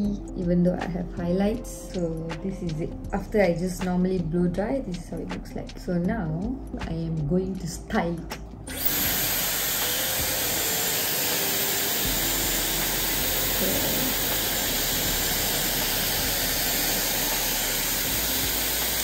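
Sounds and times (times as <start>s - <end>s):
hot-air styler blowing: 8.7s - 19.0s.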